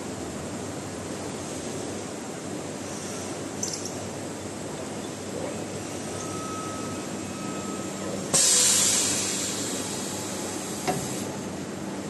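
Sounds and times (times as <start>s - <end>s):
welder hissing: 8.4s - 11.3s.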